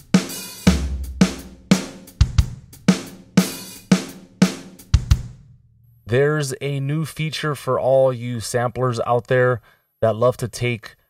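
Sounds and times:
drum beat with ringing cymbals: 0.0 - 5.4.

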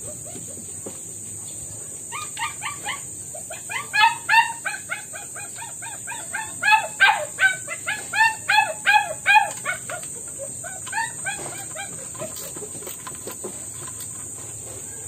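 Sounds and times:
small dog yapping: 2.1 - 13.4.

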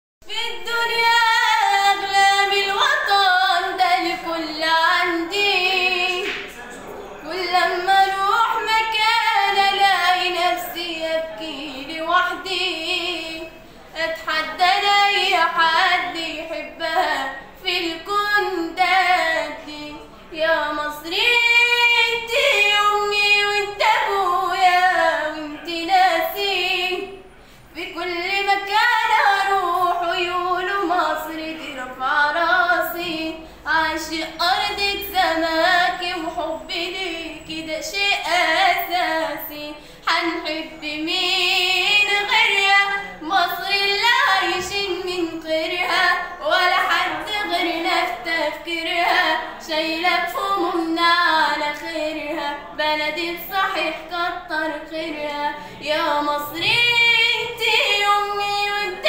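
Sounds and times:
girl singing unaccompanied: 27.8 - 59.0.

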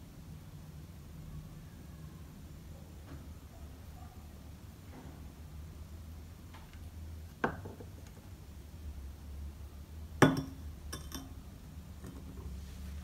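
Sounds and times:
glass mug clinking on ceramic saucer: 10.2 - 11.4.

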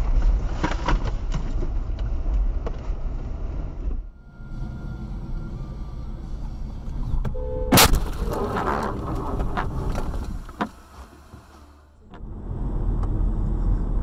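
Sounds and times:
brief tone: 4.1 - 7.8
car crash: 6.5 - 12.0.

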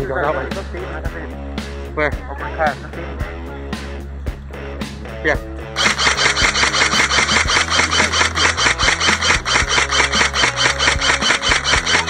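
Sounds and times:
airsoft rifle full-auto burst: 5.8 - 12.0.

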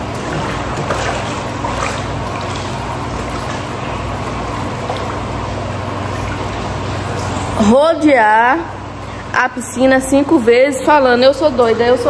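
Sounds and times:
water sloshing in paddling pool: 0.0 - 9.3.

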